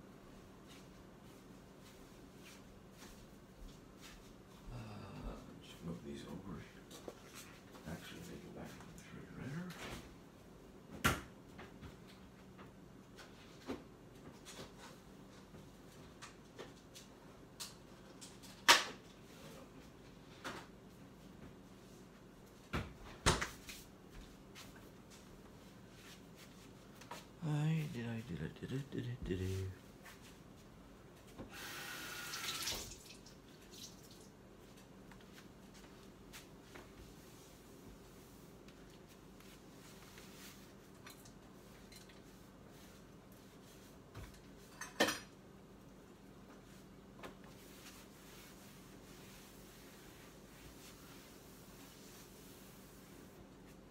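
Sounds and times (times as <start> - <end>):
kitchen cabinet and dishware clatter: 44.2 - 45.4.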